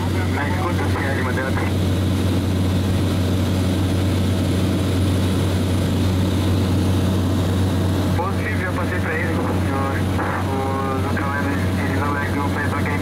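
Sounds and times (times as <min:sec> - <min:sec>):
noisy rush: 0:00.0 - 0:13.0
propeller aircraft engine hum: 0:00.0 - 0:13.0.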